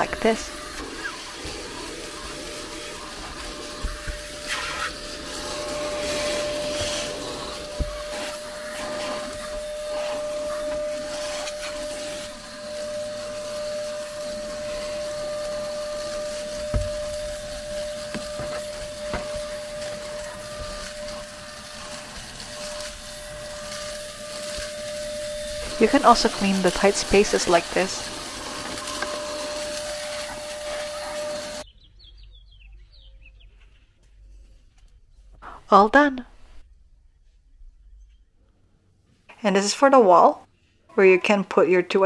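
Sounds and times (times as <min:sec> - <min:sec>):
cordless vacuum whining: 0:00.0 - 0:31.7.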